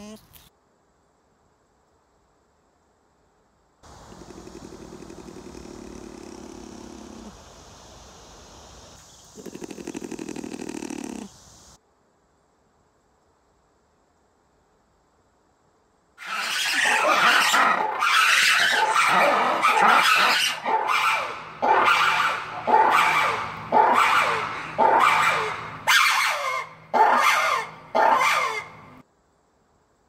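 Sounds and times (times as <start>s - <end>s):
lemur alarm call shrieks: 16.2s - 28.8s.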